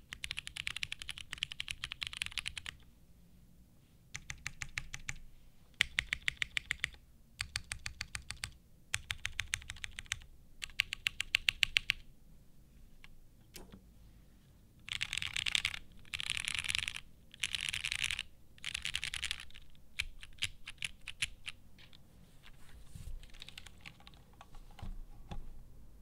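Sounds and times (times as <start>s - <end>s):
mechanical keyboard typing: 0.1s - 2.8s, 4.2s - 5.2s, 5.8s - 12.0s, 14.8s - 22.0s, 23.2s - 24.8s.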